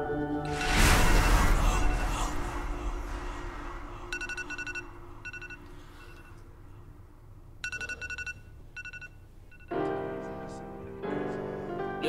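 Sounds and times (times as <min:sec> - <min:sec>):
smartphone alarm beeping: 0:04.1 - 0:06.4, 0:07.6 - 0:09.8.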